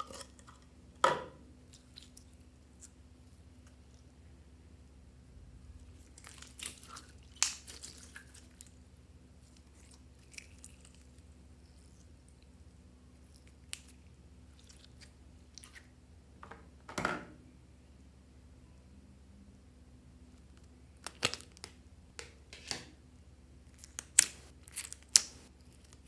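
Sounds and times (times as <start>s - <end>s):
slime wet clicks and crackles: 6.0s - 8.8s.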